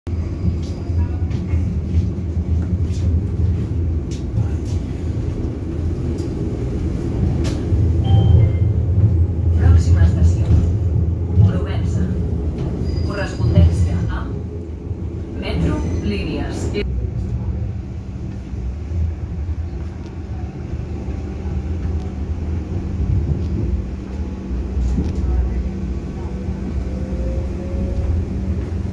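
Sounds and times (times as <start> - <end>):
train interior rumble: 0.1 - 28.9.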